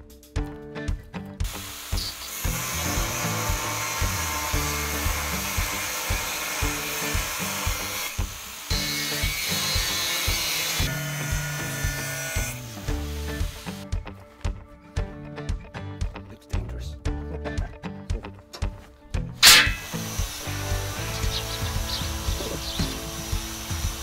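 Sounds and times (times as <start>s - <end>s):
angle grinder cutting steel: 1.5s - 13.8s, 19.4s - 24.0s.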